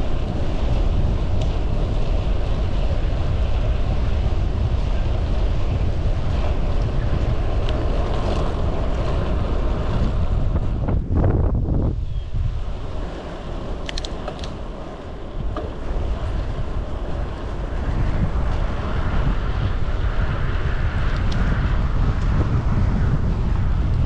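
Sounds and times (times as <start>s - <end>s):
wind buffeting microphone: 0.0s - 24.0s
light clicks: 13.8s - 14.6s.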